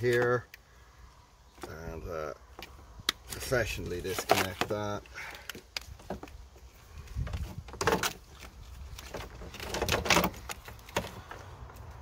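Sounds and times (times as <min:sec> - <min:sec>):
plastic conduit rustling and scraping: 0:02.6 - 0:12.0.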